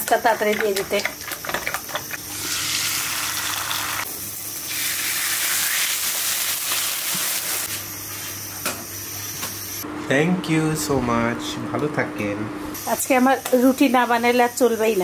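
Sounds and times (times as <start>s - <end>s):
utensil beating egg in bowl: 0.0s - 4.0s.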